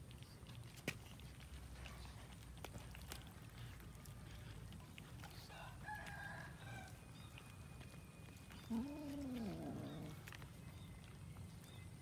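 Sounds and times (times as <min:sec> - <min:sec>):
cats chewing clicks: 0:00.0 - 0:11.9
rooster crowing: 0:05.6 - 0:06.9.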